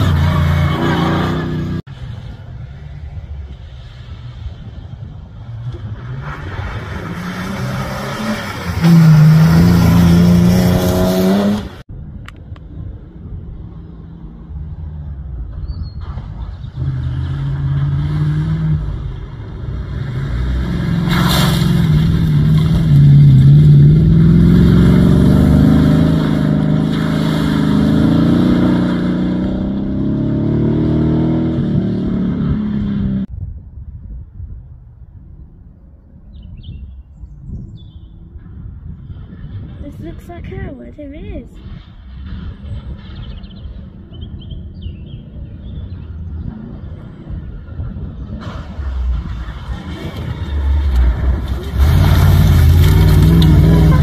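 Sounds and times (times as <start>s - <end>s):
engine accelerating: 14.8s - 33.3s, 45.3s - 54.0s
racing car engine revving: 16.6s - 33.3s.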